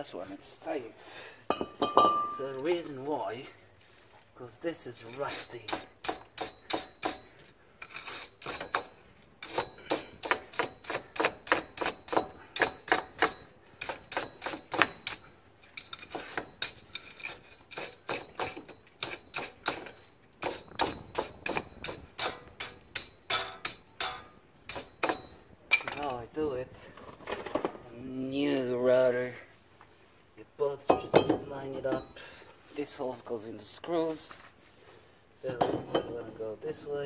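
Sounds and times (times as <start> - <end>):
wire brush scrubbing metal: 7.8 - 25.2.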